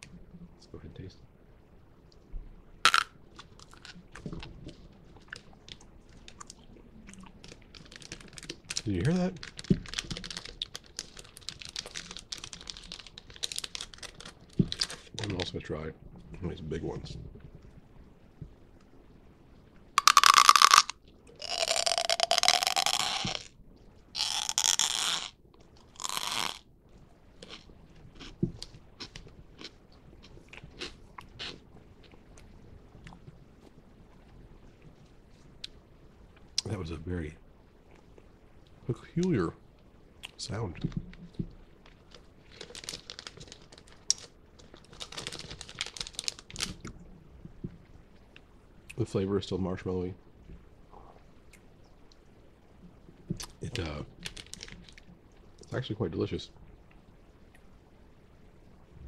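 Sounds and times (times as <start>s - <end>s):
plastic snack pouch crinkling: 2.9s - 4.4s, 7.2s - 15.5s, 20.0s - 23.5s, 24.2s - 26.6s, 41.9s - 46.9s, 53.4s - 55.0s
person speaking: 8.8s - 9.4s, 14.9s - 17.3s, 53.5s - 54.2s
marshmallow crunching when bitten: 20.0s - 23.5s, 24.2s - 26.6s, 42.5s - 46.9s.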